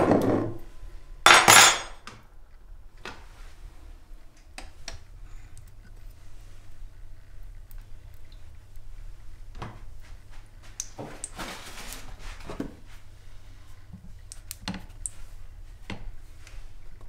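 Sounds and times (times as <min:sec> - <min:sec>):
kitchen utensils clicking and knocking: 0:01.3 - 0:02.0.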